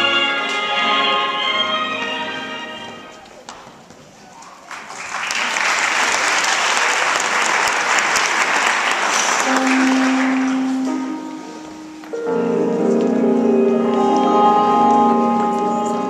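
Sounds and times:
music with held notes: 0.0s - 3.2s, 9.4s - 16.0s
audience applauding: 4.5s - 11.1s.

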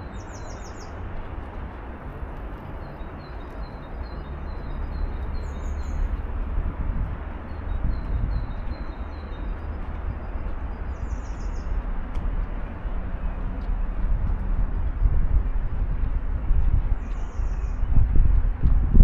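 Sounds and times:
small birds chirping: 0.0s - 1.1s, 2.6s - 6.4s, 7.4s - 12.1s, 17.0s - 18.1s.

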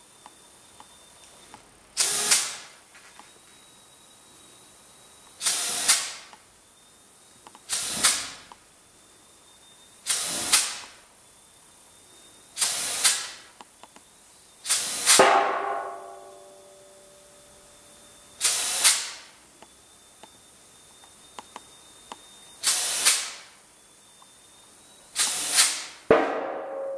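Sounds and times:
compressed air hissing bursts: 7.7s - 8.5s, 10.0s - 10.9s, 12.6s - 13.5s, 14.6s - 15.3s, 18.4s - 19.3s, 22.6s - 23.5s, 25.1s - 26.0s
sharp knock with metallic ringing: 15.1s - 16.8s, 26.1s - 26.9s.

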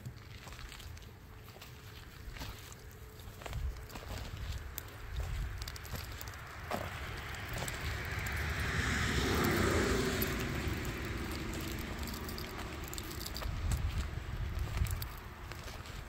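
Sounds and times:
car passing: 6.0s - 15.6s.

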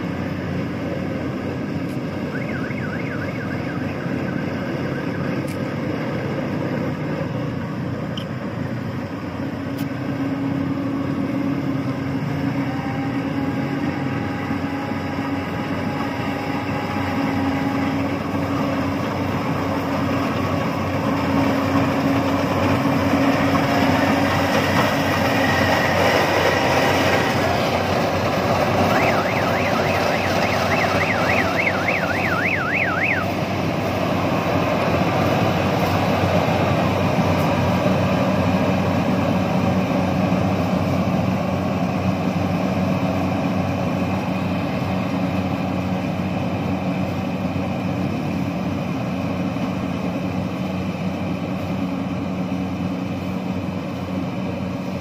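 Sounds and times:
combine harvester running: 0.0s - 55.0s
warbling electronic tone: 28.8s - 33.3s.

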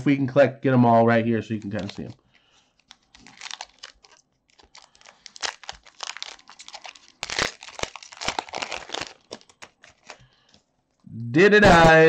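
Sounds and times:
foil wrapper crinkling and tearing: 1.5s - 10.6s.

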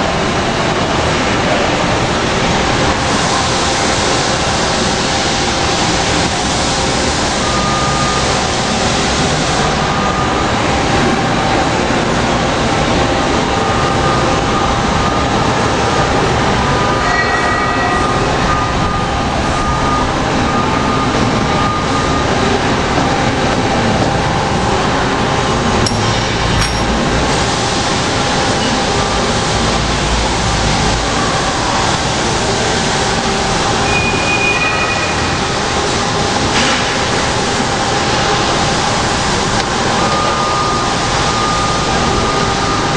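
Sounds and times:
industrial machinery running: 0.0s - 42.9s.

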